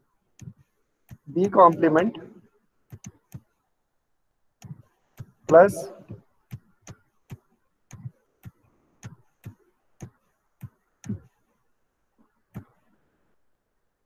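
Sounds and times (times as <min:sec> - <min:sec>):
computer mouse clicking: 0:02.9 - 0:03.6.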